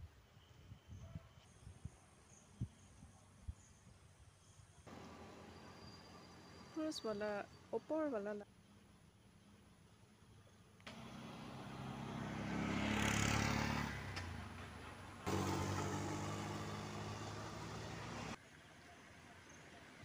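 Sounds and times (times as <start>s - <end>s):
engine starting and running: 10.9s - 18.4s
vehicle passing by: 10.9s - 18.4s.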